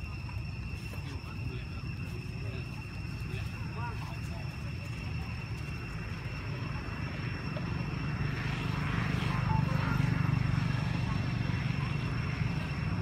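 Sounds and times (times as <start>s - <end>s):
passing motor engine drone: 2.6s - 13.0s.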